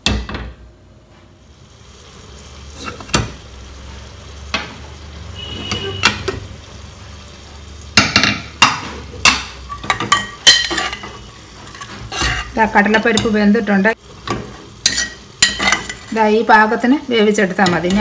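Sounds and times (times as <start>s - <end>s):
metal ladle knocking on pot: 8.0s - 11.0s.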